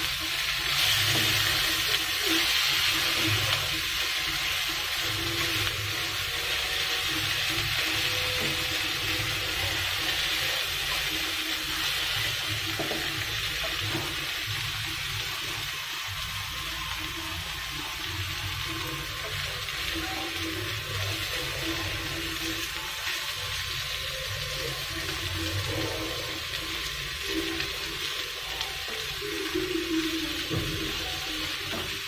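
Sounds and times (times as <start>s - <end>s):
prawns sizzling in oil: 0.0s - 32.0s.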